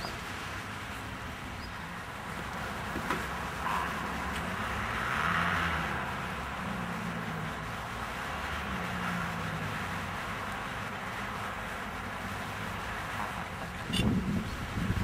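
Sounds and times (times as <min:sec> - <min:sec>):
low engine hum: 0:00.0 - 0:15.0
wind rumble on microphone: 0:13.2 - 0:15.0.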